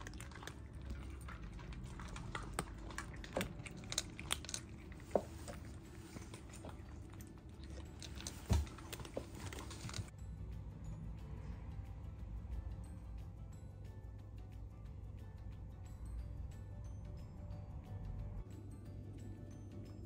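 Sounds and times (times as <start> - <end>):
cat crunching dry kibble: 0.0 - 10.1.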